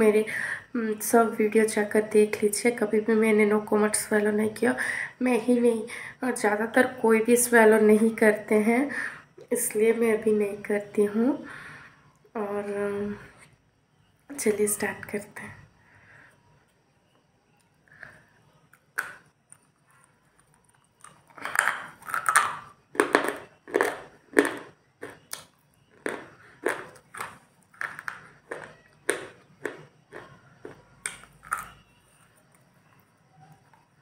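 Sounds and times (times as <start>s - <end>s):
crunching of a brittle stick: 18.7s - 33.0s.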